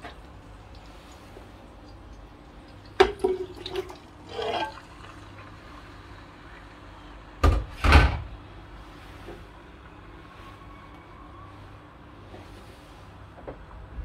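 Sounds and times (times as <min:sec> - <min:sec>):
colander clanking and scraping: 0:03.0 - 0:05.1.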